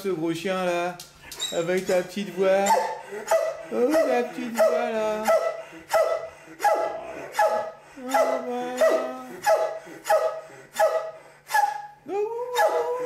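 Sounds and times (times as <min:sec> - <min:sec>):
dog yelping barks: 0:02.6 - 0:12.0, 0:12.6 - 0:13.0.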